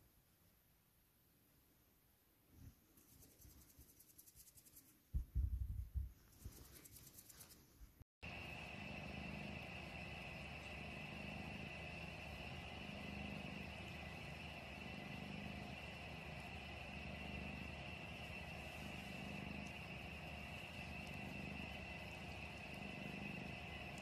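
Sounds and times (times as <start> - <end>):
cat purring: 8.2 - 24.0
thin high whine: 8.2 - 24.0.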